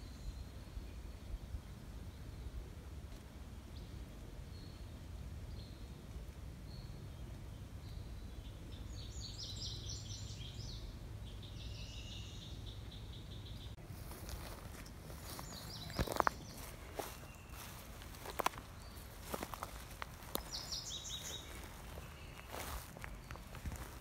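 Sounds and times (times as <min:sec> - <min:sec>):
low outdoor rumble: 0:00.1 - 0:24.0
birds singing: 0:03.7 - 0:24.0
footsteps on grass: 0:13.8 - 0:24.0.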